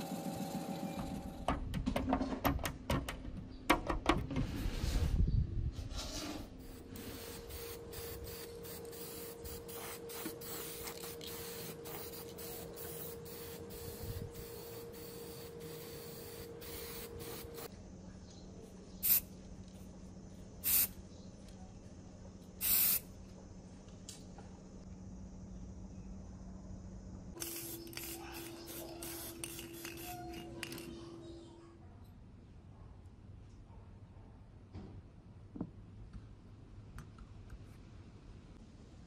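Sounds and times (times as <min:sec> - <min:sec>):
spray paint can hissing: 0:06.6 - 0:17.7, 0:19.0 - 0:19.3, 0:20.6 - 0:21.0, 0:22.6 - 0:23.1, 0:27.4 - 0:31.0.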